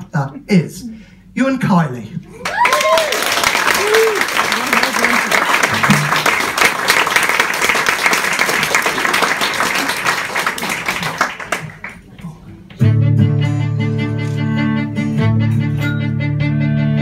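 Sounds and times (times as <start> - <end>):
audience applauding: 2.4 - 12.4
plucked guitar: 12.5 - 17.0
held string notes: 12.8 - 17.0.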